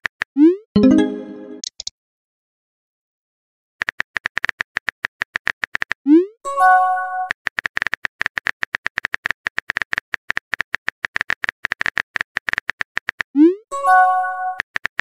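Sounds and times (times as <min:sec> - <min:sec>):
rising swoop and chime: 0:00.8 - 0:01.6.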